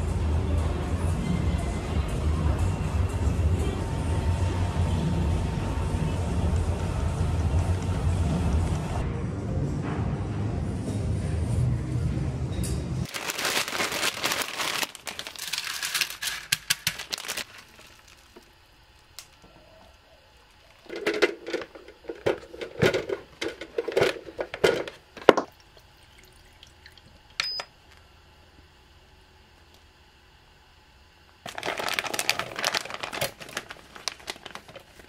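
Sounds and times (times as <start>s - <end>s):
background music: 0.0s - 13.1s
crinkling and clattering: 13.1s - 18.5s, 20.7s - 25.5s, 31.4s - 35.0s.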